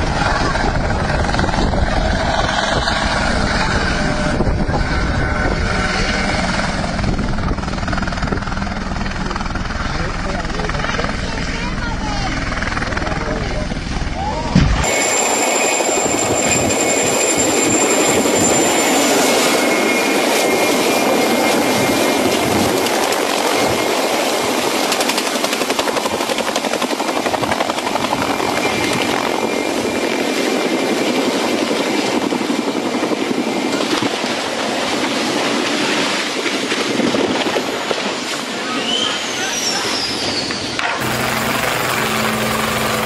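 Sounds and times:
helicopter rotor chopping: 0.0s - 38.6s, 40.8s - 43.0s
thin high whine: 14.8s - 21.8s.

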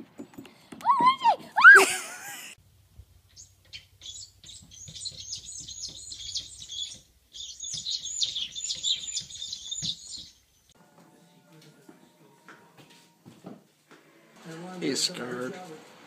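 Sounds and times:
rapid high-pitched chirping: 3.3s - 10.4s.

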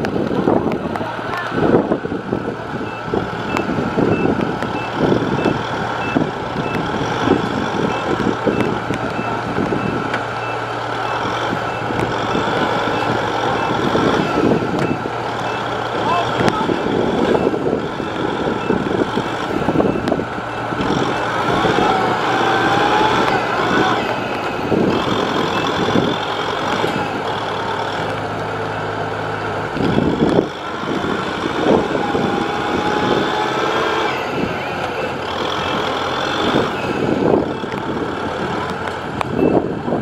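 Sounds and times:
diesel engines under load: 0.0s - 40.0s
high beeping: 2.8s - 6.8s, 7.8s - 26.2s.

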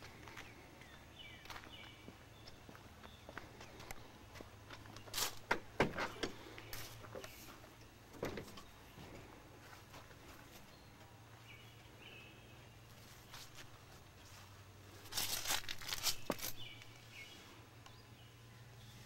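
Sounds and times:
low steady hum: 0.0s - 19.0s
rustling handling noise: 12.9s - 17.2s
bird chirps: 16.1s - 19.0s.

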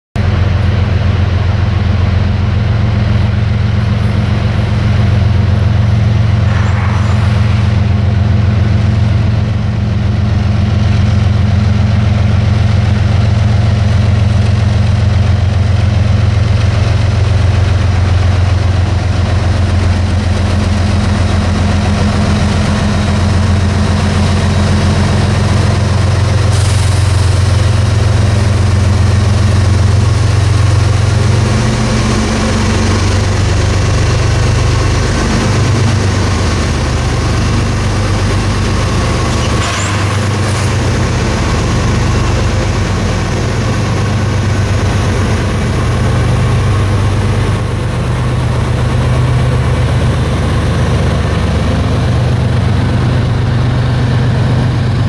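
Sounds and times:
locomotive diesel engines droning: 0.2s - 55.0s
train hiss: 26.4s - 34.1s.

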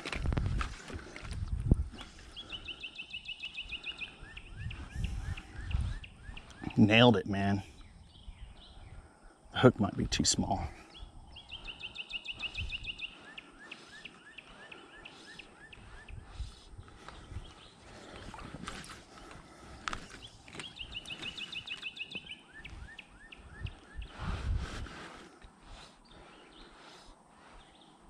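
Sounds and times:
songbird singing: 0.0s - 28.0s.

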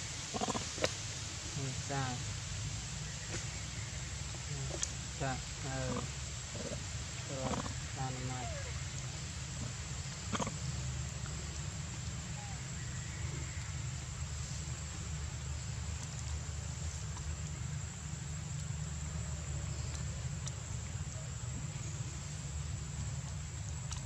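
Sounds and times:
even hiss: 0.0s - 24.0s
faint clicks: 23.2s - 24.0s.

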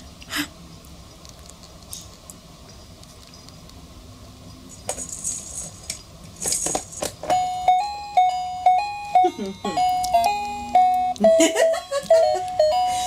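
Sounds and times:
baby toy rattling: 4.7s - 7.3s
electronic toy tune beeping: 7.3s - 13.0s.

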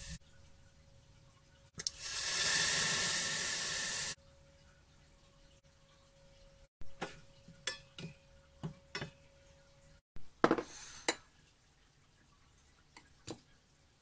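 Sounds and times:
metal utensil clinking on saucepan: 7.6s - 8.2s
ceramic bowl set down on countertop: 10.4s - 10.8s.

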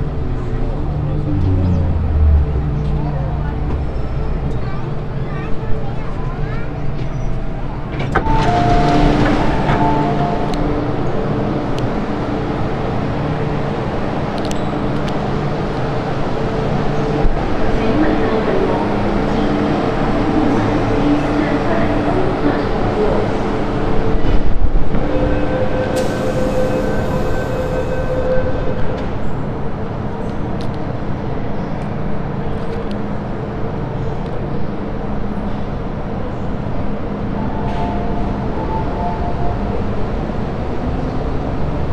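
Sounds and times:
train rumbling at platform: 0.0s - 41.9s.

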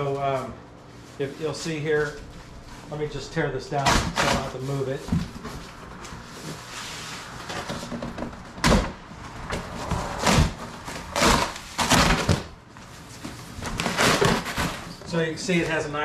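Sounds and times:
cardboard rips and thumps: 3.8s - 5.6s, 7.5s - 12.6s, 13.3s - 15.0s
cardboard tearing: 9.6s - 12.5s, 13.5s - 15.0s.

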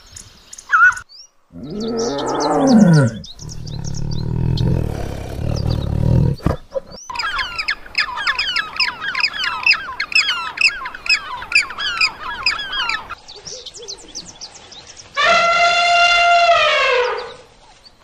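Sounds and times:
many birds chirping: 0.0s - 15.2s
tiger growl: 1.5s - 7.0s.

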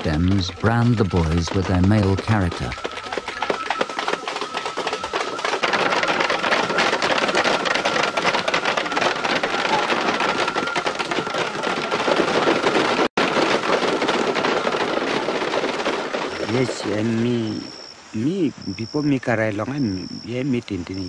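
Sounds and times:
thin steady high tone: 16.4s - 21.0s.

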